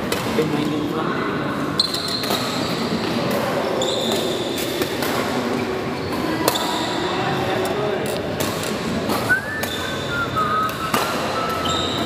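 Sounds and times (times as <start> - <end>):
shoe squeaks on court floor: 1.8 - 2.7, 3.7 - 4.6, 10.9 - 12.0
racket hitting shuttlecock: 4.1 - 5.5
hall background noise: 5.6 - 12.0.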